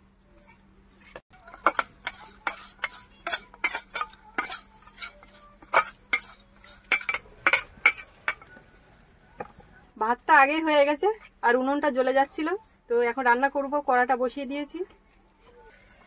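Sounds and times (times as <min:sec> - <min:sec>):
food scraping in metal bowl: 0:01.0 - 0:08.5.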